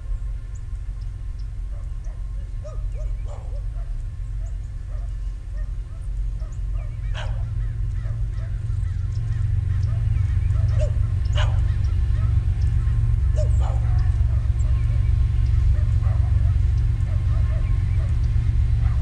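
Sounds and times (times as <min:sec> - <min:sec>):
diesel locomotive rumble: 0:00.0 - 0:19.0.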